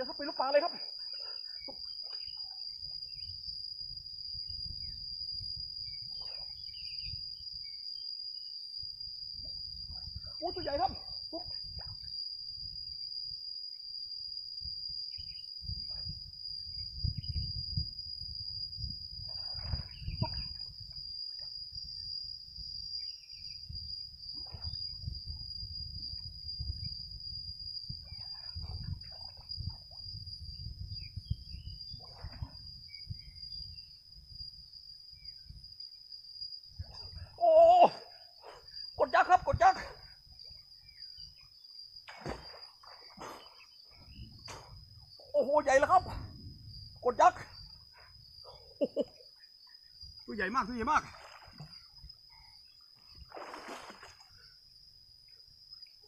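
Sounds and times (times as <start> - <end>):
high insect trill: 0.0 - 56.0
wind rumble on microphone: 2.8 - 7.7, 8.8 - 13.0, 14.6 - 35.8, 36.6 - 37.4, 43.9 - 48.8
swimmer surfacing splash: 53.3 - 54.2.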